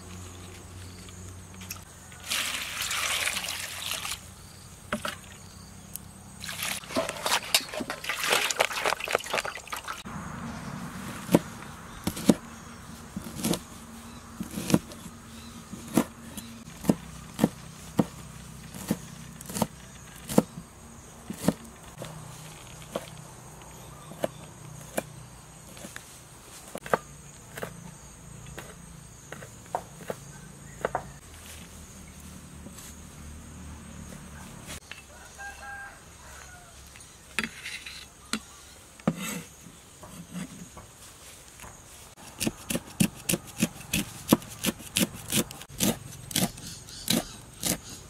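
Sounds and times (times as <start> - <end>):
cleaver chopping on wooden board: 11.3 - 12.4, 15.8 - 20.5, 21.3 - 21.7, 42.4 - 48.0.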